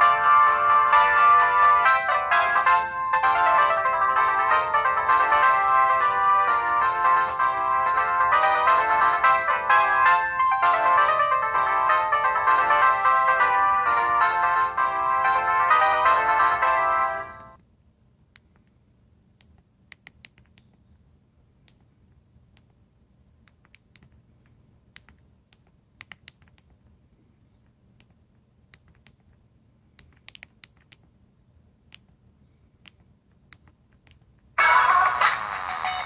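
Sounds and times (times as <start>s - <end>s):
phone ringtone melody: 0.0s - 17.6s, 34.6s - 36.0s.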